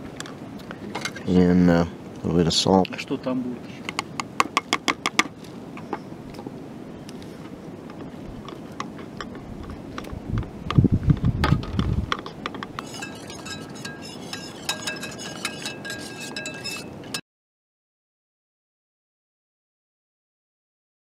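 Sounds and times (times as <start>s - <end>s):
spoon clinking in metal mug: 12.8s - 17.2s.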